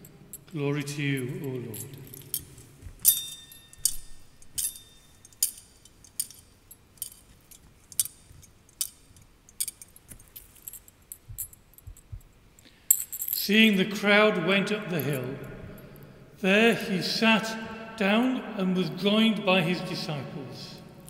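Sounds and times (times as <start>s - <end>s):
censer chains and lid clinking: 0.0s - 13.7s, 15.0s - 16.2s.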